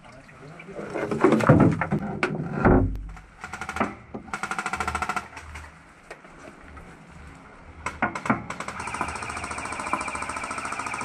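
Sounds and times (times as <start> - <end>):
airsoft gun firing full auto: 3.4 - 5.3, 7.9 - 11.0.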